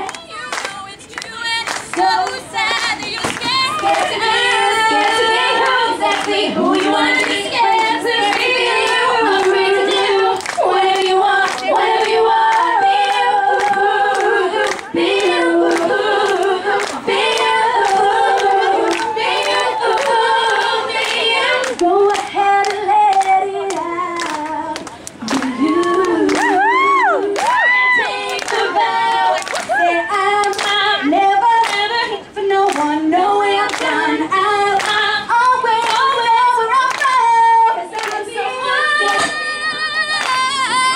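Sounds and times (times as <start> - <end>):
women singing pop song: 0.0 - 40.9
sharp claps: 0.1 - 4.0, 10.4 - 26.6, 34.8 - 35.0, 36.9 - 37.2, 38.0 - 38.2, 40.2 - 40.4.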